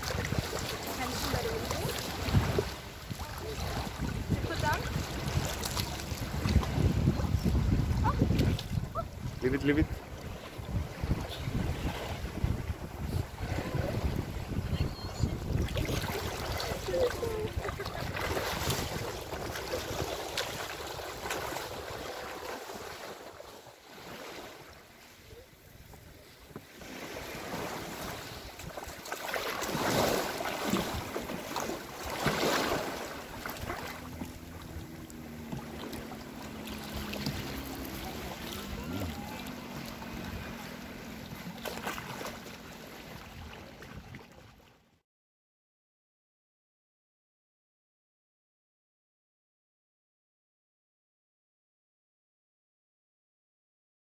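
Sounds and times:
wind on microphone: 0.0s - 22.8s
sea water sloshing and splashing: 0.0s - 45.0s
faint voices: 37.4s - 40.8s.

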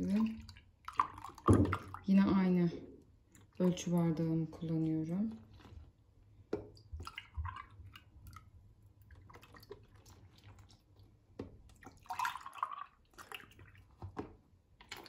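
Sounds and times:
milk pouring into a glass: 6.6s - 15.0s.

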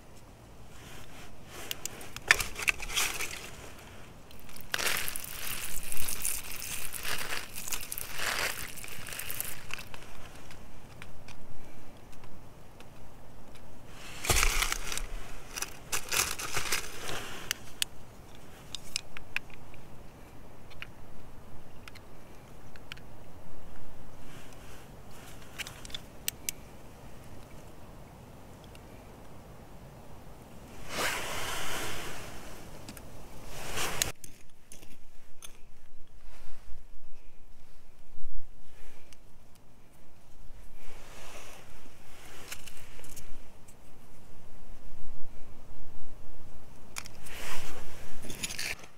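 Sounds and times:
metal tool scraping gravelly soil: 0.7s - 10.6s, 13.9s - 17.8s, 33.4s - 34.2s
fingers rubbing crystal: 4.3s - 10.3s.

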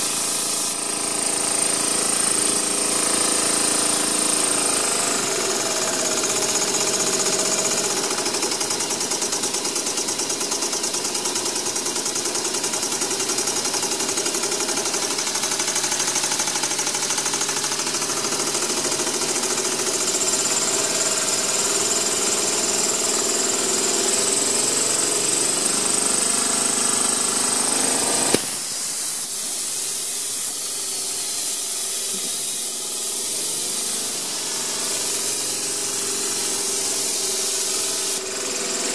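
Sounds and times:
sharp click: 28.3s - 28.7s
steam engine chattering: 28.4s - 38.9s.

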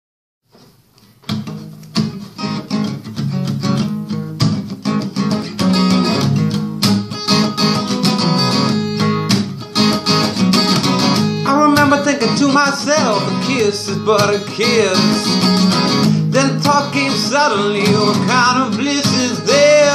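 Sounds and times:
acoustic guitar strumming chords: 1.2s - 19.9s
man singing: 11.4s - 19.9s.

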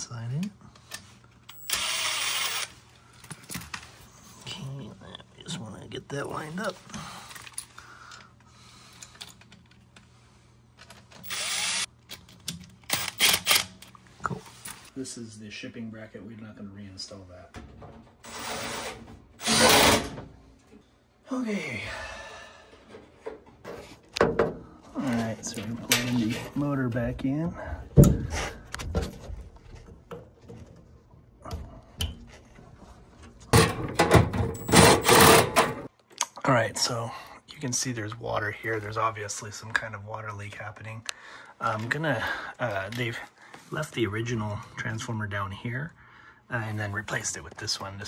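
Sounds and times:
impact driver whining: 18.3s - 20.2s
metal parts knocking and scraping: 33.5s - 35.9s.

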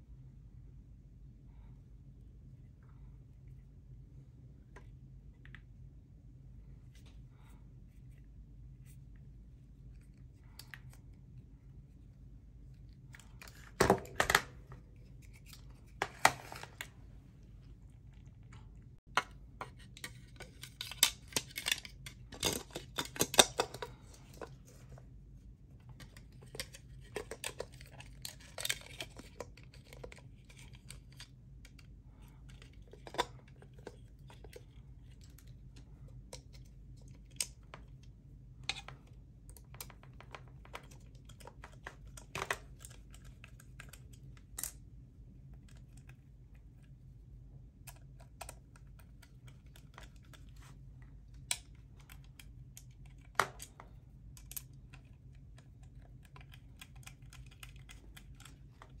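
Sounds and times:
faint low hum: 0.0s - 59.0s
plastic and tools clicking: 47.8s - 59.0s.

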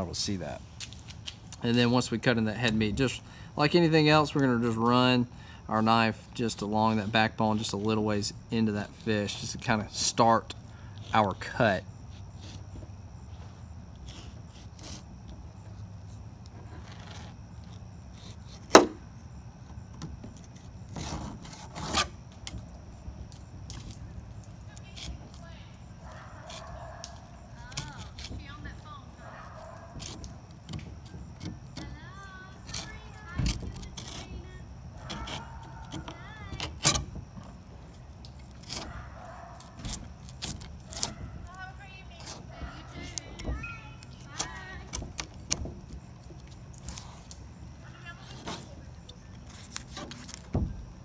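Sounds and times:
knife scraping against bone: 10.8s - 12.8s, 14.0s - 15.4s, 20.4s - 22.6s, 24.7s - 28.5s, 29.2s - 37.0s, 38.4s - 41.6s.

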